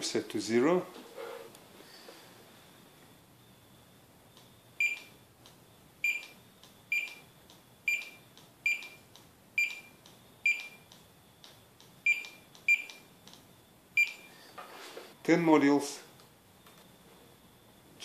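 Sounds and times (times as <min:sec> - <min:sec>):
barcode scanner beeps: 0:04.8 - 0:05.2, 0:06.0 - 0:07.3, 0:07.9 - 0:10.9, 0:12.0 - 0:13.1, 0:14.0 - 0:14.3.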